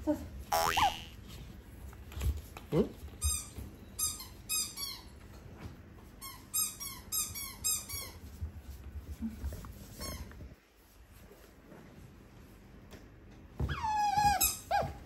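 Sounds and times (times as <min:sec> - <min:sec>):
squeaky toy squeaking: 0:00.5 - 0:01.1.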